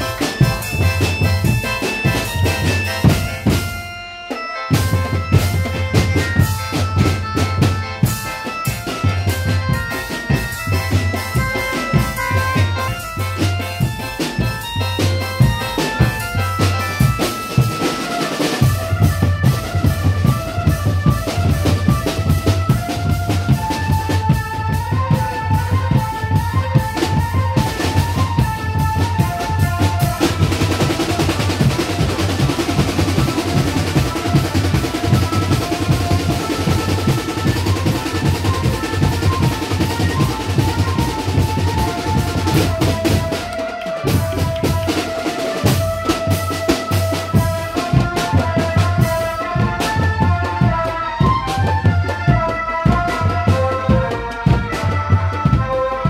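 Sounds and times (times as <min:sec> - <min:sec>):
bass drums pounding a beat: 0:00.0 - 0:04.0, 0:04.7 - 0:56.0
melody line: 0:00.0 - 0:18.7.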